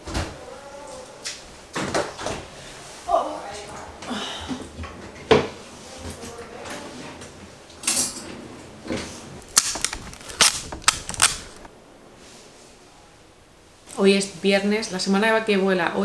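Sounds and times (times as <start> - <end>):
rustle: 5.5 - 15.5.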